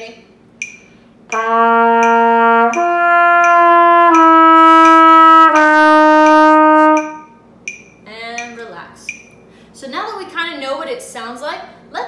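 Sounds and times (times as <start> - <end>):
metronome clicking: 0.6 - 9.4
trumpet playing lip slurs: 1.3 - 7.4.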